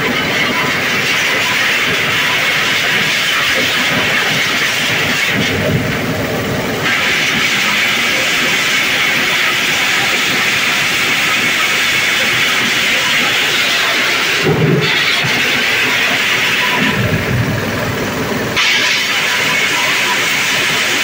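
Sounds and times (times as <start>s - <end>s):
dehusking machine engine din: 0.0s - 21.0s
low rumble: 5.4s - 6.9s, 16.8s - 18.6s.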